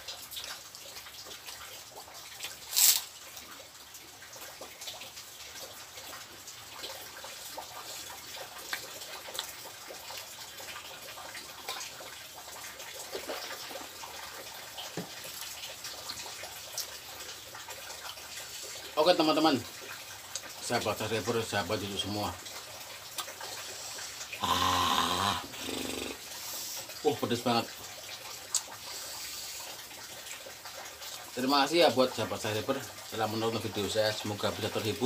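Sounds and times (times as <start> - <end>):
wet chewing: 2.3 - 3.6, 8.0 - 9.7.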